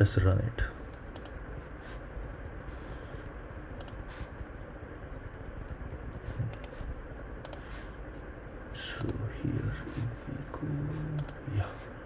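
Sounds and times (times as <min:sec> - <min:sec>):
keyboard and mouse clicks: 0:00.9 - 0:01.4, 0:03.8 - 0:04.1, 0:05.6 - 0:06.8, 0:07.4 - 0:07.7, 0:11.2 - 0:11.4.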